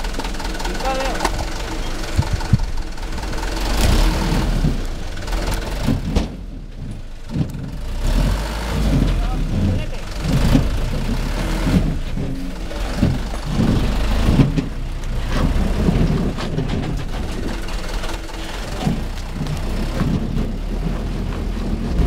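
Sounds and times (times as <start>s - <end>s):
truck engine running: 0.0s - 22.0s.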